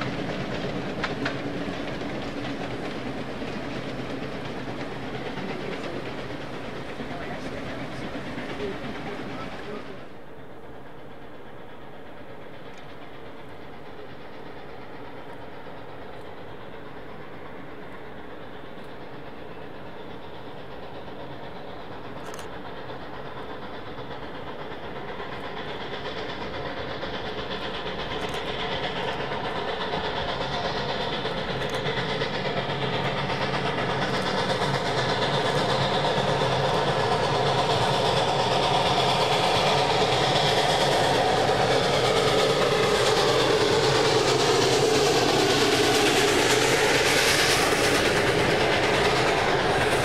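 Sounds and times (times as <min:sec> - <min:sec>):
steam locomotive running: 0:00.0 - 0:50.0
train coaches rolling past: 0:00.0 - 0:50.0.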